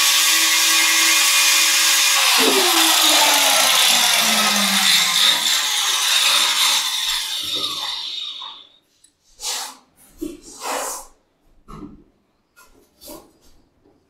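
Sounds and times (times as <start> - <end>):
power tool grinding plastic: 0.0 - 8.7
short breathy puffs: 9.2 - 11.2.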